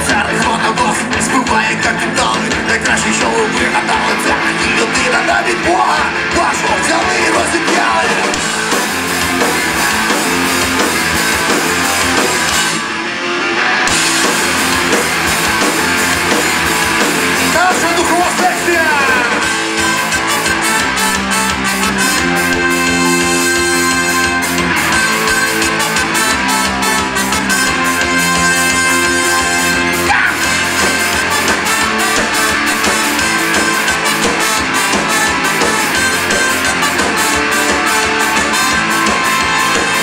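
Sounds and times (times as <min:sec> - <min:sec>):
man singing lead vocal: 0:00.0 - 0:08.5, 0:17.4 - 0:19.6, 0:29.4 - 0:31.4
live rock band playing: 0:00.0 - 0:40.0.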